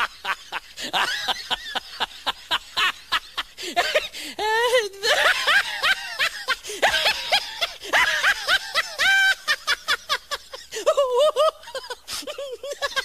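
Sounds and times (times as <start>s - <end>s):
person laughing: 0.0s - 13.0s.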